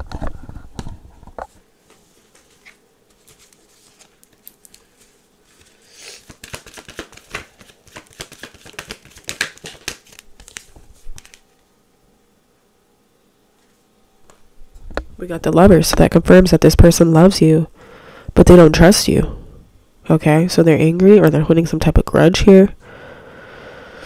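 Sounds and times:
cards being shuffled by hand: 0.0 - 11.6.

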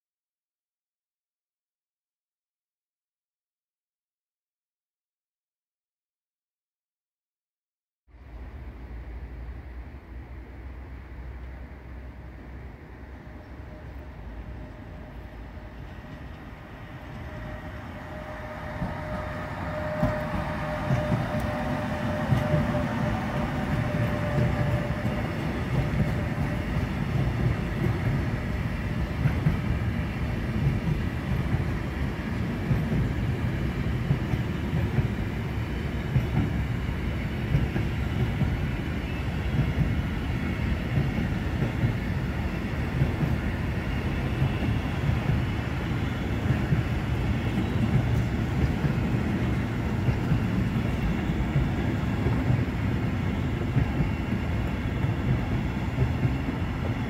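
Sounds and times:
electric locomotive passing: 8.2 - 57.0.

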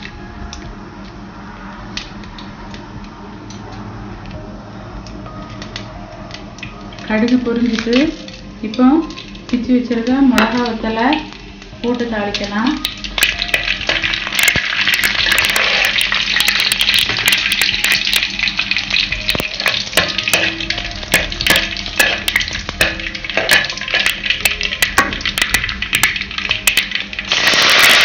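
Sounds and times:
spices sizzling and popping in oil: 5.1 - 28.0
steel ladle stirring in pan: 19.3 - 26.8.

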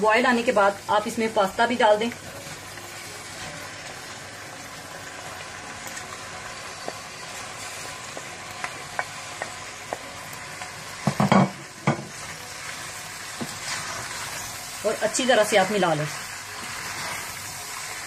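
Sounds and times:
sauce sizzling in a frying pan: 0.0 - 18.0
spatula knocking and scraping pan: 11.0 - 12.1.

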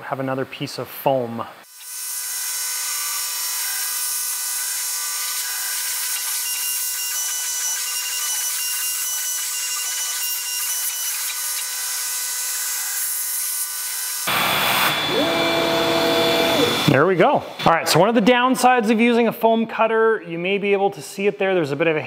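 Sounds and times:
laser engraver hissing and whining: 14.1 - 17.0.

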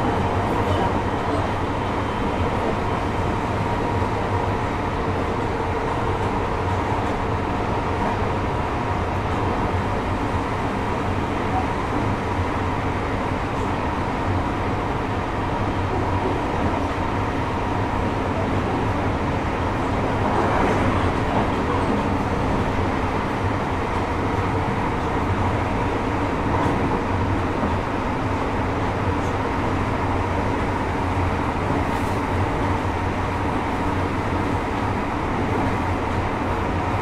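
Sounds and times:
train wheels rumbling on rail: 0.0 - 37.0.

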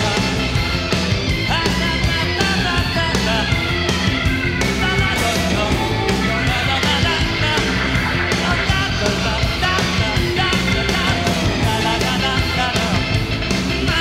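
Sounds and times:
rock band playing live: 0.0 - 14.0.

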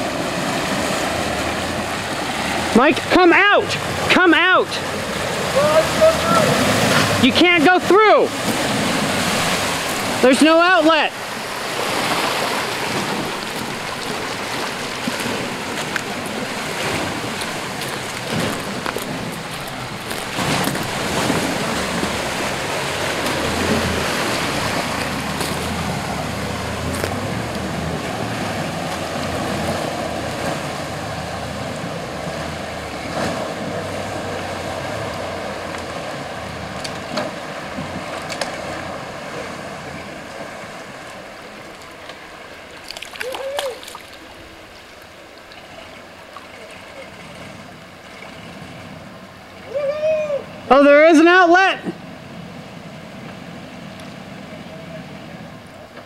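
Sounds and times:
water rushing and splashing: 0.0 - 56.0.

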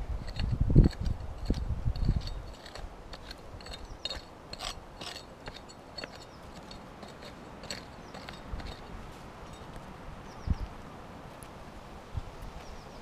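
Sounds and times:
pick scraping stony soil: 0.0 - 10.0.

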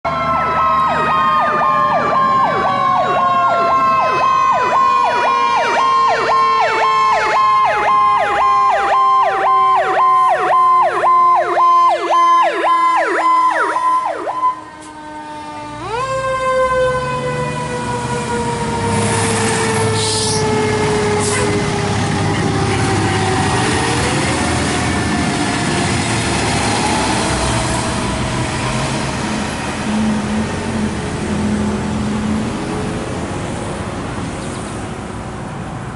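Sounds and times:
electronic siren yelping: 0.1 - 21.7
siren wailing: 0.1 - 30.9
heavy truck engine: 0.1 - 35.9.

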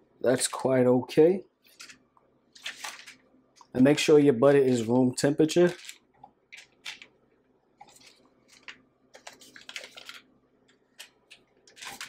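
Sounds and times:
wrapper crinkling: 1.7 - 3.2, 5.5 - 7.1, 7.8 - 10.3, 11.0 - 12.0.

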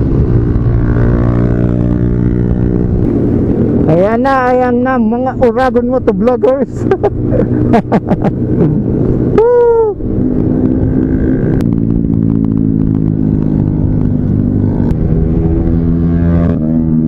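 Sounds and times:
road and wind noise: 0.0 - 17.0
person shouting: 9.3 - 10.0.

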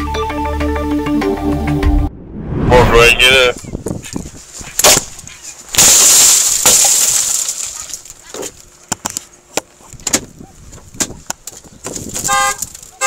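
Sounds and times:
car window glass shattering: 5.7 - 8.1
glass fragments clinking: 5.8 - 8.2.

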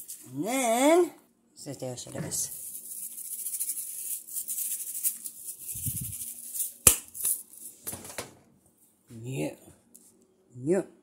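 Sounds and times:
seasoning shaker rattling: 0.0 - 0.3, 2.4 - 7.8
shaker clicks: 2.5 - 7.8.

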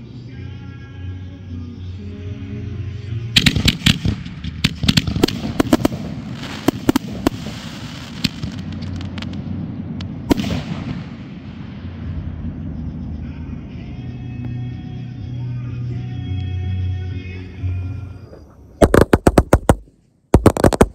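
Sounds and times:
fireworks bangs and crackles: 3.3 - 12.9, 18.8 - 20.9.

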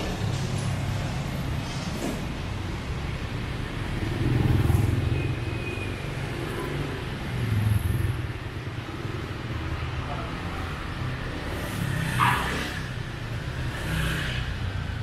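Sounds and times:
motorbike engines rumbling: 0.0 - 15.0
street traffic: 0.0 - 15.0.

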